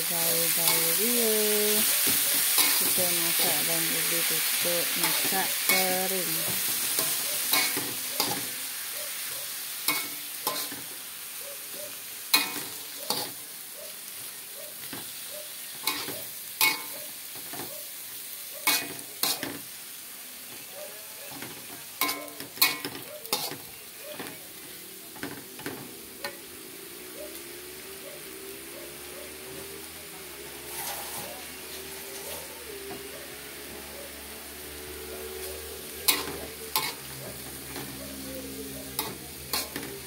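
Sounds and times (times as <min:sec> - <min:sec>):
food sizzling: 0:00.0 - 0:40.0
metal spatula scraping a wok: 0:00.4 - 0:10.9, 0:12.3 - 0:13.4, 0:14.8 - 0:17.7, 0:18.6 - 0:19.8, 0:21.4 - 0:24.4, 0:30.4 - 0:33.8, 0:34.6 - 0:40.0.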